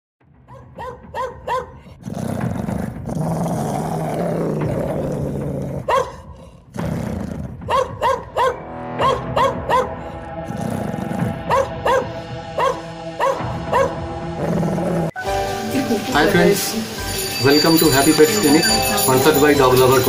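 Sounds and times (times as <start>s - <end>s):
dog barking: 0.5s - 1.9s, 5.8s - 6.4s, 7.6s - 10.1s, 11.4s - 14.0s
dog growling: 1.5s - 8.4s, 9.8s - 15.2s.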